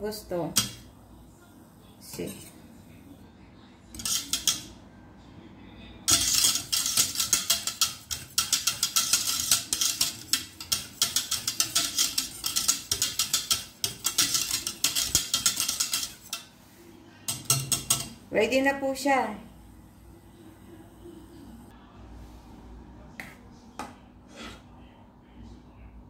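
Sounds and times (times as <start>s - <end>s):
wire whisk scraping metal pot: 0.5s - 0.9s, 2.1s - 2.6s, 3.9s - 4.8s, 6.1s - 16.6s, 17.3s - 18.3s.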